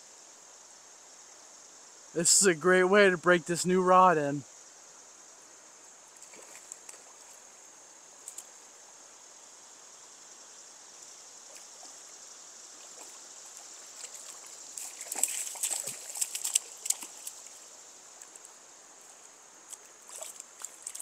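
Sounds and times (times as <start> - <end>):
river flowing: 5.4 - 21.0
fish splashing at surface: 14.0 - 17.5.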